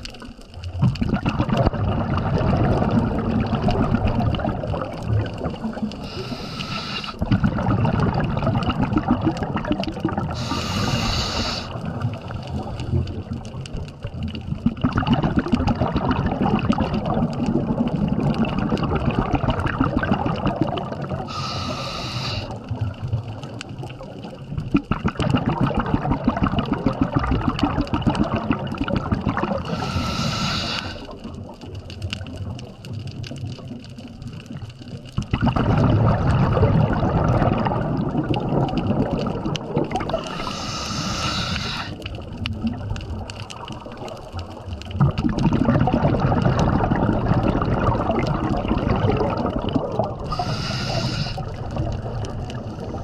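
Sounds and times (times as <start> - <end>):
exhaled air bubbling underwater: 0.0 - 53.0
regulator inhalation hiss: 6.0 - 7.2, 10.4 - 11.8, 21.3 - 22.6, 29.6 - 31.1, 40.2 - 42.0, 50.3 - 51.4.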